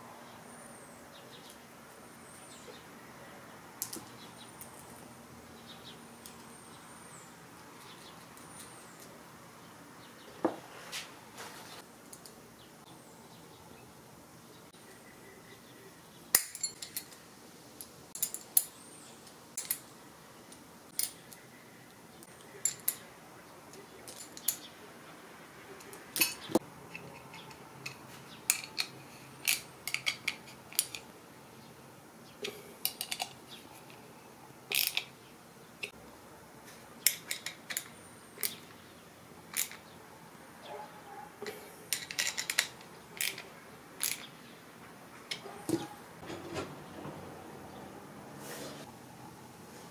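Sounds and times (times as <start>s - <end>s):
metal parts clicking and clinking: 16.3s - 17.2s, 18.2s - 18.8s, 19.6s - 19.9s, 22.6s - 23.0s, 24.0s - 24.7s, 25.8s - 31.1s, 32.4s - 33.4s, 34.7s - 35.1s, 37.0s - 38.7s, 39.5s - 39.9s, 41.4s - 44.3s.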